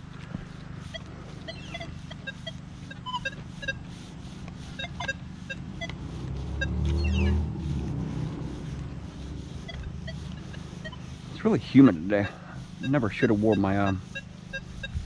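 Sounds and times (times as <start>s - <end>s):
metal detector beeps: 0.8s - 4.0s, 4.6s - 6.0s, 6.6s - 7.4s, 9.6s - 15.0s
passing vehicle rumble: 3.1s - 13.5s.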